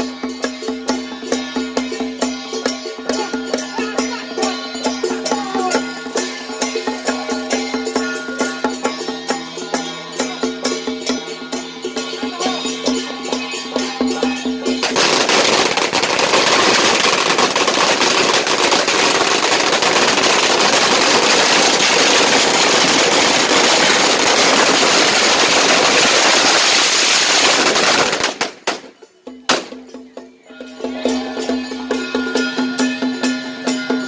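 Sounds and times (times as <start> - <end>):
firecrackers crackling: 14.7 - 29.8.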